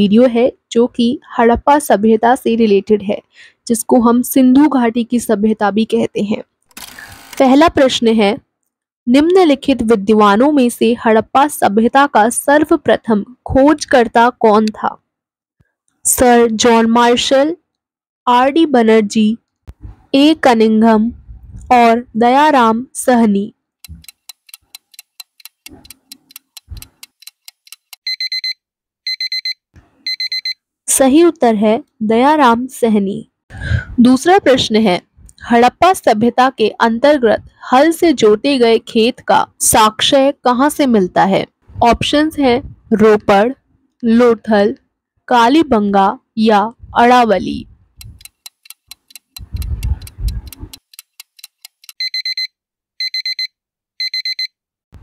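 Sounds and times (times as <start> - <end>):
clock ticking: 23.8 - 28.4, 48.0 - 52.4
alarm clock beeping: 24.0 - 30.6, 51.8 - 54.6.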